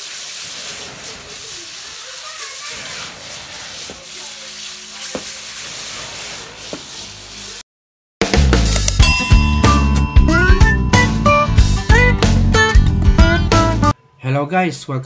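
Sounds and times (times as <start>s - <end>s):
meat sizzling in hot oil: 0.0s - 7.6s.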